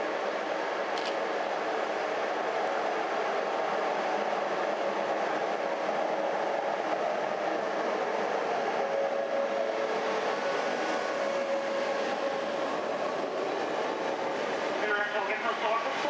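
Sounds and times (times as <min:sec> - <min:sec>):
train wheels on rail: 0:00.0 - 0:16.0.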